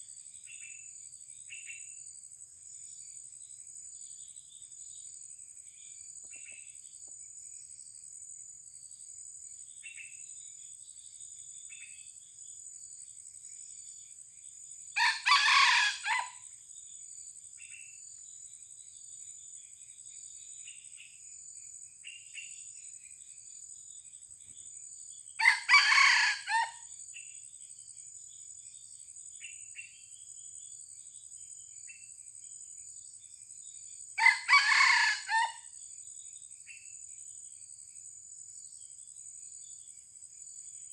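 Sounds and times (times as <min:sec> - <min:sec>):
faint bird chirps: 0:02.9 - 0:08.0, 0:08.8 - 0:12.6, 0:17.5 - 0:25.5
rooster crowing: 0:15.0 - 0:16.4, 0:25.4 - 0:26.8, 0:34.2 - 0:35.6.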